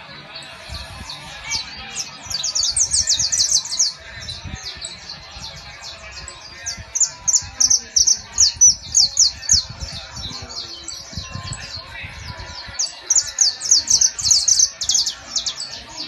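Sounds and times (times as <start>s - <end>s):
finches singing: 0.0s - 16.0s.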